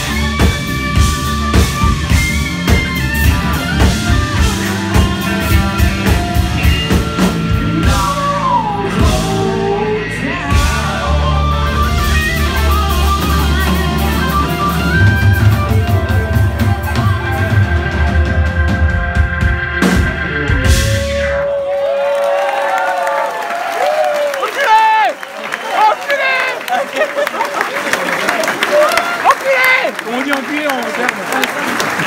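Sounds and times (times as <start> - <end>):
electric guitar playing lead: 0.0 - 21.6
drum kit: 0.0 - 21.9.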